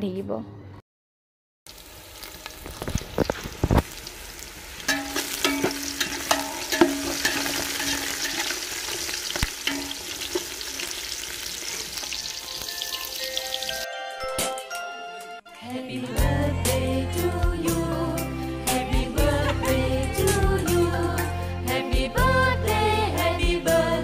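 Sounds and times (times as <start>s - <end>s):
onion sizzling in hot oil: 1.7s - 13.9s
spoon stirring against pot: 4.9s - 10.9s.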